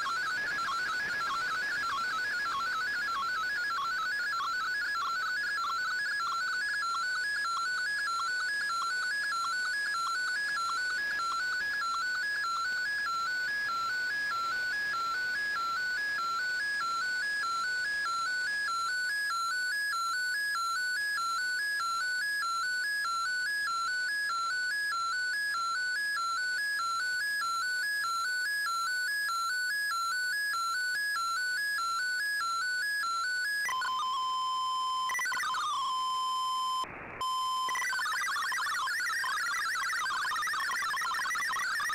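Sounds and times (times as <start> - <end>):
radio tones hopping between pitches: 0.0 - 17.9, 33.1 - 41.9
pair of steady tones: 19.6 - 41.9.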